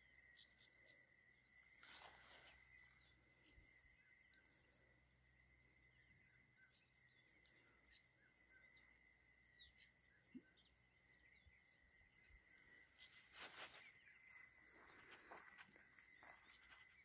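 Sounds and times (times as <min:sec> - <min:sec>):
faint chirps: 0:00.0 - 0:17.0
rustle: 0:01.6 - 0:03.2, 0:13.0 - 0:16.9.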